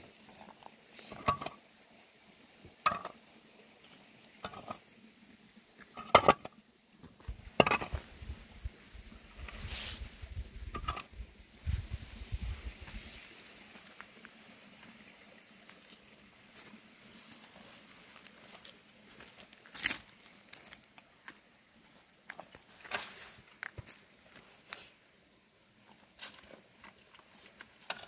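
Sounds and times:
grain rustling on plastic sheet: 0:09.4 - 0:10.6
shovel scraping dry earth: 0:09.4 - 0:13.2, 0:22.7 - 0:23.5.

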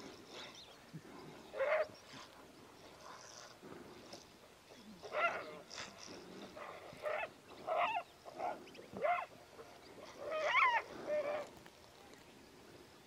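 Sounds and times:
wolves yelping: 0:01.6 - 0:02.0, 0:06.6 - 0:09.4, 0:10.1 - 0:11.5.

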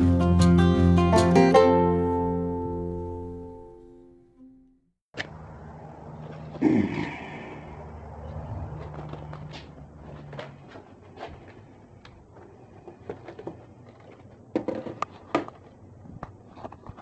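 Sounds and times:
handling clicks and knocks: 0:08.8 - 0:17.0.

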